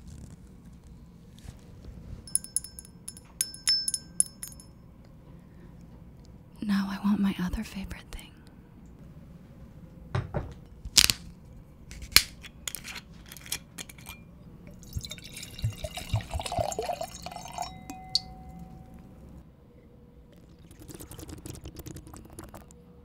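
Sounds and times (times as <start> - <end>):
glass and bottle clicks: 2.3 - 4.7, 12.7 - 19.0
light glass ping: 2.3 - 4.7, 17.3 - 19.1
wine pouring into a glass: 14.7 - 18.6, 20.3 - 22.7.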